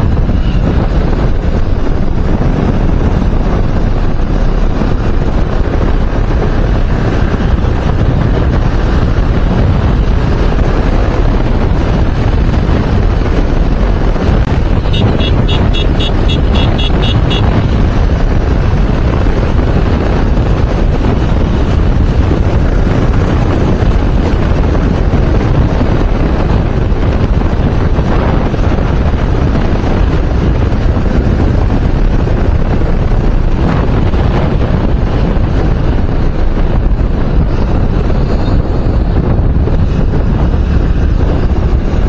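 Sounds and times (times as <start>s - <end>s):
wind buffeting microphone: 0.0s - 42.0s.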